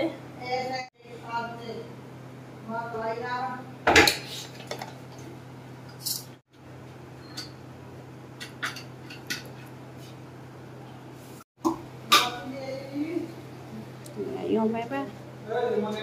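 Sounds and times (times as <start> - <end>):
utensils clinking on a steel bowl: 8.4 - 9.7.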